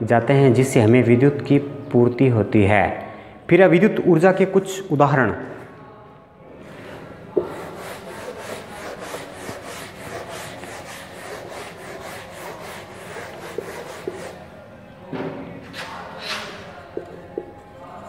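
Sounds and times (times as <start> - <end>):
duster scrubbing whiteboard: 7.3 - 14.5.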